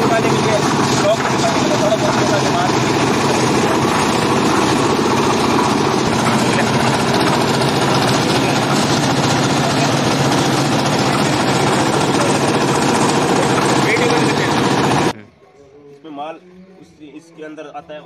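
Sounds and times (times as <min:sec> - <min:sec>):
machine engine running: 0:00.0 - 0:15.2.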